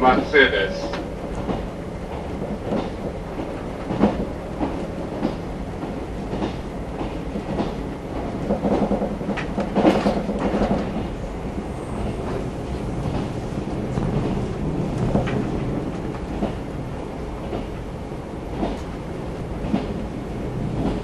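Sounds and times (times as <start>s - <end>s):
train rumble: 0.0s - 21.0s
wheels clicking over rail joints: 0.9s - 11.1s.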